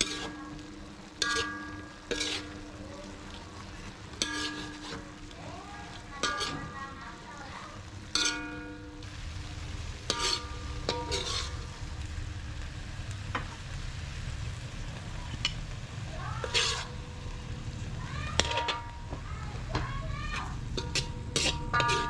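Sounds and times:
spatula clinking against pan: 0.0s - 2.6s, 4.2s - 5.0s, 6.2s - 6.8s, 8.1s - 9.0s, 10.1s - 11.6s, 16.4s - 17.0s, 18.3s - 22.0s
metal spatula scraping wok: 0.0s - 7.2s, 8.0s - 9.1s, 9.9s - 12.0s, 15.3s - 22.0s
food sizzling in a wok: 0.0s - 22.0s.

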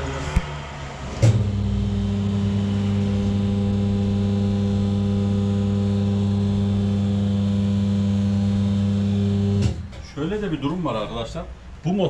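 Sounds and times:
hydraulic pump motor humming: 0.0s - 10.0s.

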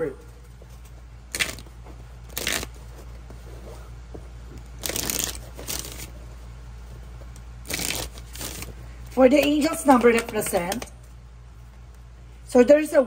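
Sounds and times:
cards being shuffled: 0.7s - 3.8s, 4.5s - 6.2s, 7.2s - 11.1s.

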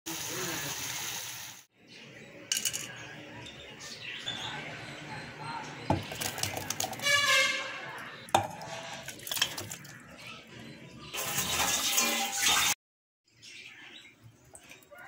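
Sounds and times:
food clinking in metal pot: 8.3s - 10.0s.

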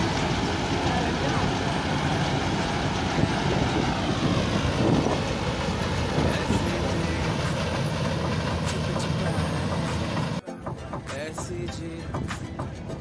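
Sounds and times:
combine harvester engine hum: 0.0s - 10.4s
threshing machinery noise: 0.0s - 10.4s.

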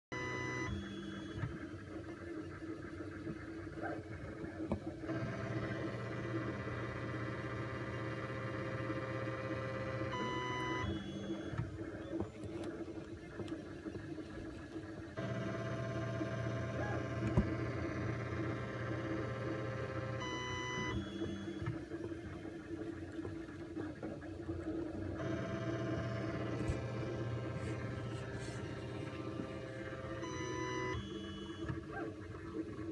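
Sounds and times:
printer motor whirring: 0.1s - 32.9s
quick stepped motor tones: 25.0s - 32.3s.

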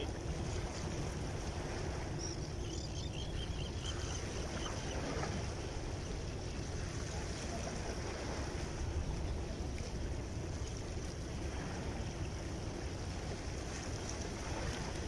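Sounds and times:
sea washing against rocks: 0.0s - 2.2s, 9.9s - 15.0s.

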